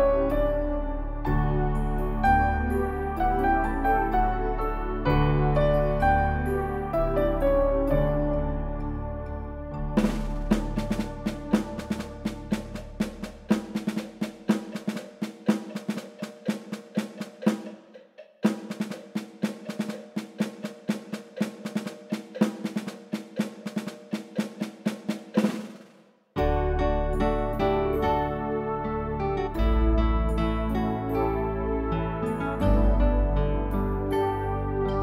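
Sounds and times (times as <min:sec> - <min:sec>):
pitched percussion music: 0:10.0 - 0:26.6.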